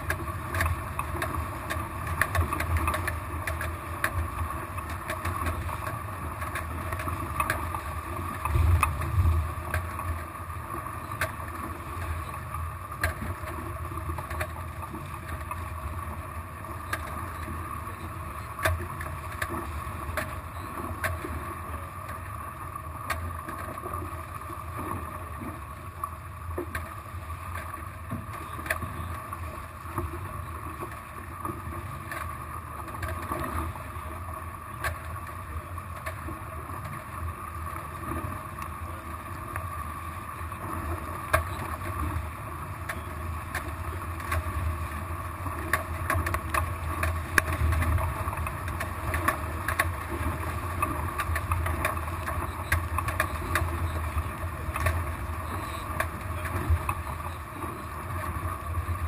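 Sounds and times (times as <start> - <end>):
water rushing and splashing: 0.0 - 59.0
wind on microphone: 8.5 - 9.7.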